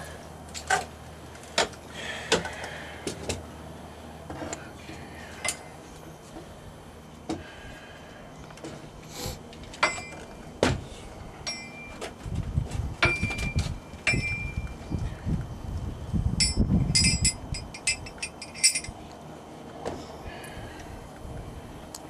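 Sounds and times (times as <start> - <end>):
metal buckle clinking: 16.4 - 19.0.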